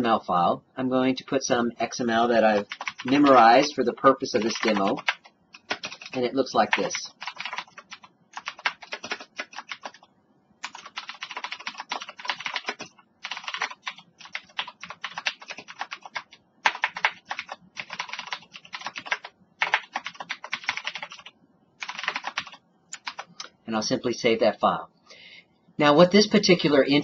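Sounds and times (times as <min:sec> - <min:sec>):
typing on computer keyboard: 0:02.5 - 0:03.6, 0:04.3 - 0:23.4.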